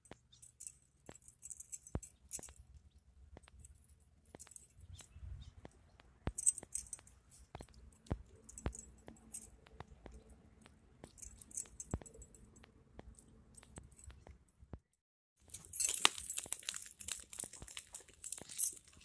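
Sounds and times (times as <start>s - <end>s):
bangles jingling: 0.0s - 5.1s, 6.3s - 12.6s, 15.4s - 19.0s
wood fire crackling: 15.4s - 19.0s.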